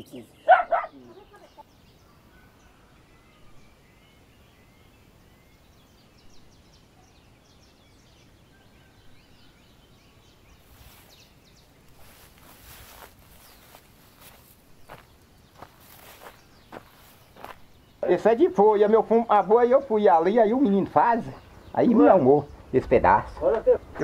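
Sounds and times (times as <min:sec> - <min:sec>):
soft rustling: 0:10.6 - 0:17.8.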